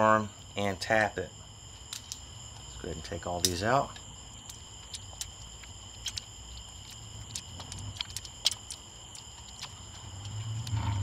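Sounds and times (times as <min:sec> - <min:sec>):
metal parts clicking and clinking: 0:01.9 - 0:02.2.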